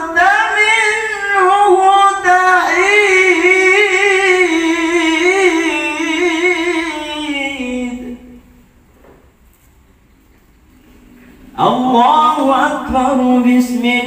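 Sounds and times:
man chanting: 0.0 - 8.6, 11.5 - 14.0.

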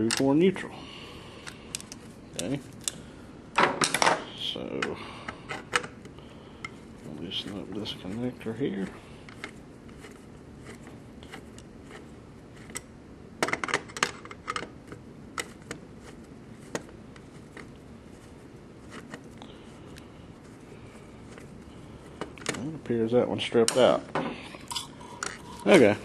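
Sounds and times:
faint background hum: 0.0 - 26.0.

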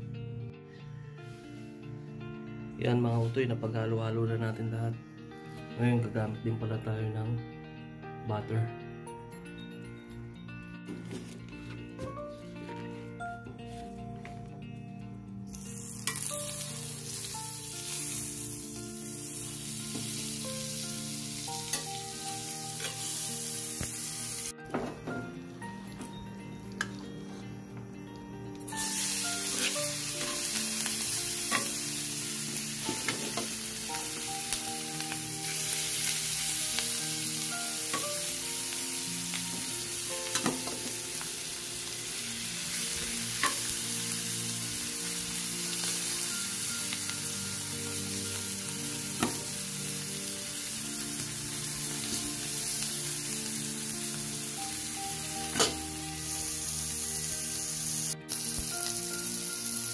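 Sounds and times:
meat sizzling on hot plate: 15.5 - 24.5, 28.5 - 59.9.

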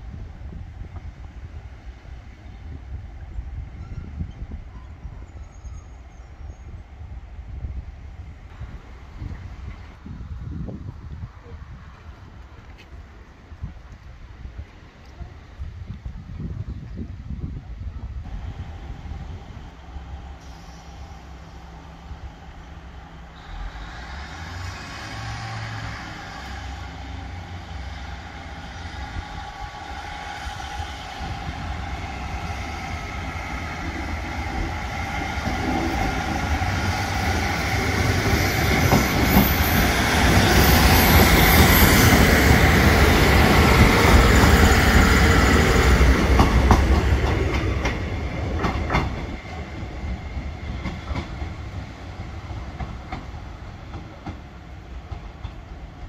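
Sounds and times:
diesel train engine: 18.2 - 56.0.

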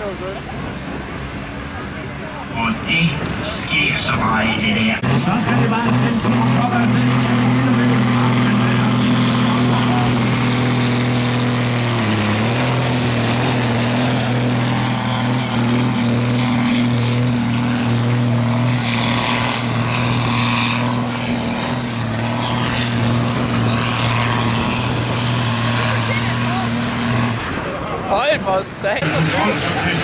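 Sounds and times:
tractor diesel engine under load: 0.0 - 30.0.

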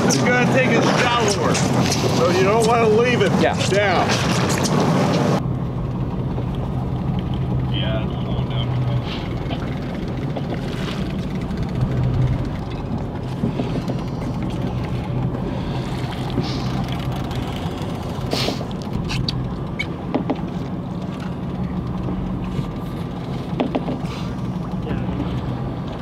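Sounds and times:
boat engine humming: 0.0 - 26.0
short knocks: 23.5 - 24.1.

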